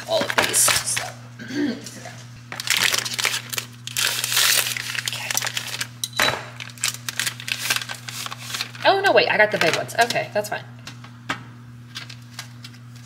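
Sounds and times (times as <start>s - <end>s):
plastic packaging crinkling: 0.0s - 1.2s, 2.5s - 9.0s, 11.9s - 13.0s.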